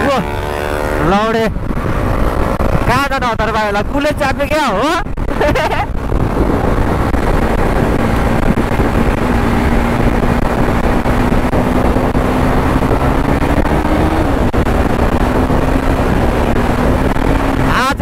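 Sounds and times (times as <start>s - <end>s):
motorcycle engine running: 0.0s - 18.0s
wind and road noise: 0.0s - 18.0s.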